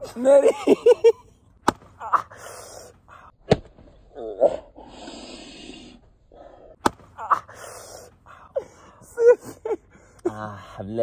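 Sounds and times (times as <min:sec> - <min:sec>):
sandal slapping a head: 0:01.6 - 0:02.0, 0:06.8 - 0:07.2
breathy laughing and gasps: 0:04.2 - 0:11.0.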